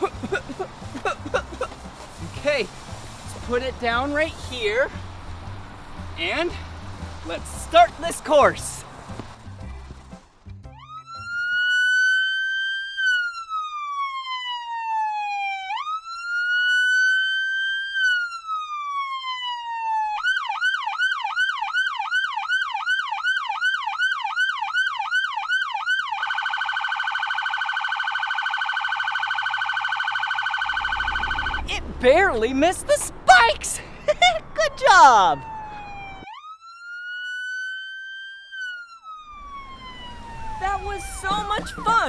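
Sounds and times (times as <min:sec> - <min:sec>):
police siren wailing and yelping: 0:10.7 - 0:31.7, 0:34.1 - 0:42.0.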